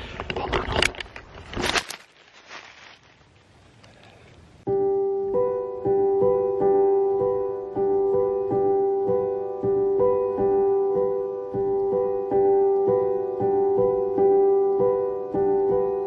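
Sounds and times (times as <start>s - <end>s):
piano music: 4.6s - 16.0s.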